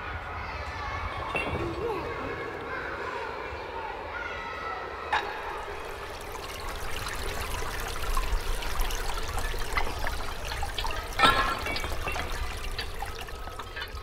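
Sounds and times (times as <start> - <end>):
water trickling into metal pot: 5.2 - 14.0.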